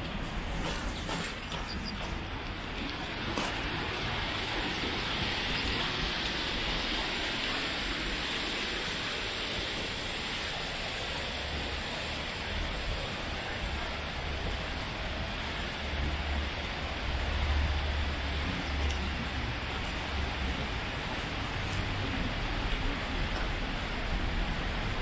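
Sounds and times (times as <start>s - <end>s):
river water rushing: 0.0s - 25.0s.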